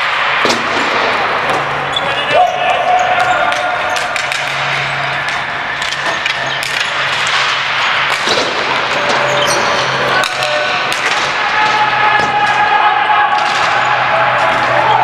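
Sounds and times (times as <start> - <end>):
sticks and ball clacking: 3.1 - 12.7.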